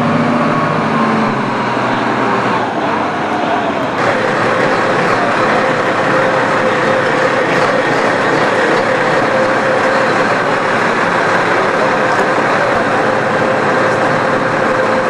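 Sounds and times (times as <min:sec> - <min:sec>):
machinery noise: 0:00.0 - 0:15.0
constant mid-pitched hum: 0:03.4 - 0:15.0.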